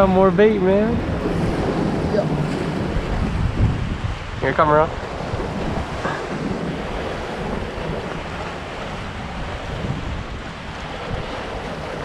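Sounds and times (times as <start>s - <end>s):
surf washing over rocks: 0.0s - 12.0s
wind buffeting microphone: 0.0s - 12.0s.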